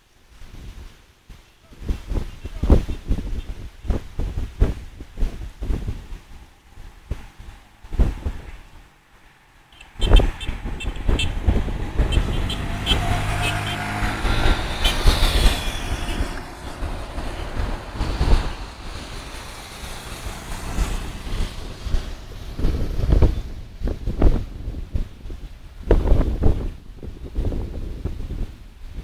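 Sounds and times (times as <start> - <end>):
vehicles passing: 4.7 - 29.0
vehicle horn: 9.8 - 18.6
heavy low rumble: 9.9 - 25.3.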